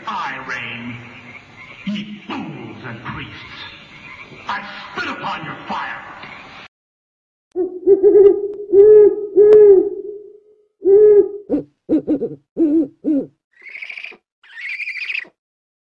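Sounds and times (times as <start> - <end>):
low hooting calls: 0.5 - 4.9, 7.6 - 15.3.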